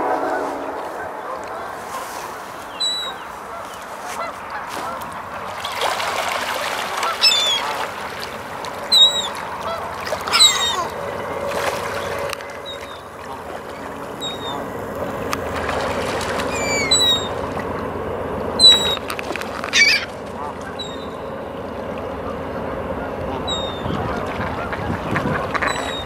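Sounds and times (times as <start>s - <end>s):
geese honking: 0.0s - 5.7s, 6.5s - 17.6s, 18.6s - 21.5s, 22.1s - 26.0s
ducks quacking: 0.0s - 15.2s, 19.7s - 21.2s, 22.1s - 26.0s.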